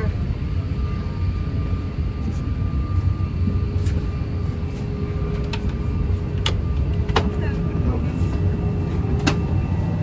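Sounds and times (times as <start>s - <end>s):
airliner cabin rumble: 0.0s - 10.0s.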